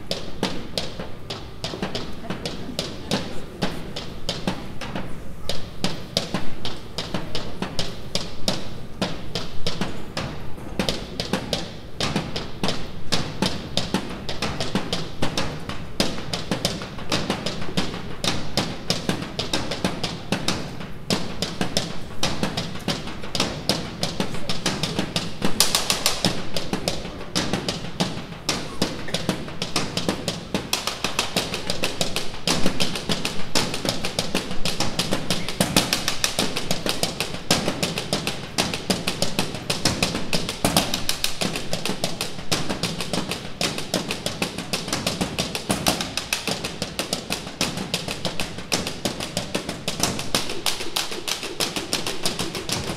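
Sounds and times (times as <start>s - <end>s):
drum kit beat: 11.0s - 52.9s.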